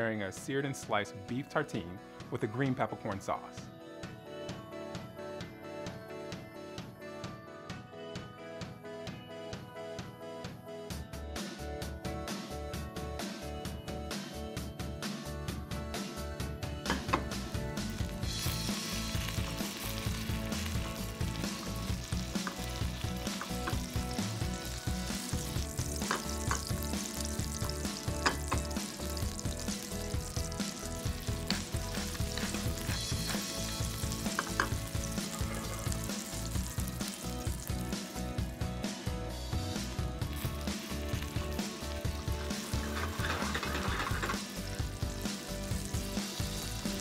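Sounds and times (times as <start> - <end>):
butter and onions sizzling: 16.9 - 38.7, 39.7 - 47.0
wooden spoon stirring: 42.6 - 44.5.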